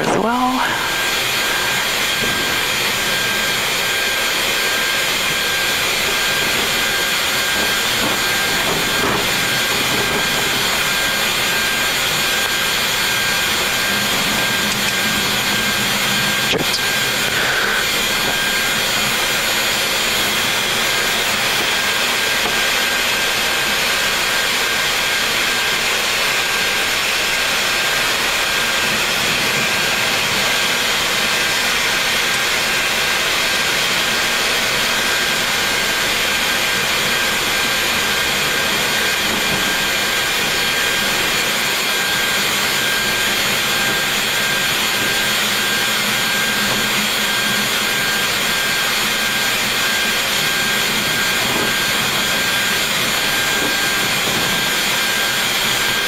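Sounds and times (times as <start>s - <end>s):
jet engines rushing hum: 0.0s - 56.0s
thin high whine: 0.0s - 56.0s.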